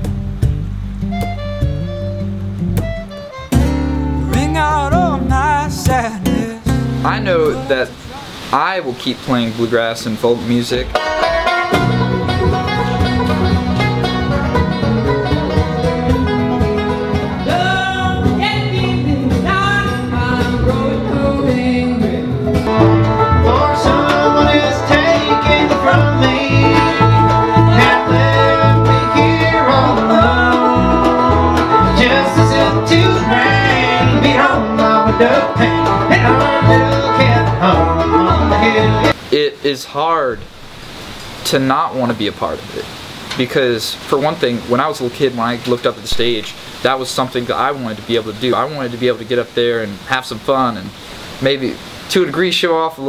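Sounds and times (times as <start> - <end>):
banjo picking: 0.0 - 8.2, 10.2 - 39.2
guitar picking: 0.0 - 8.2, 10.8 - 39.2
person singing: 4.2 - 6.8, 17.4 - 39.2.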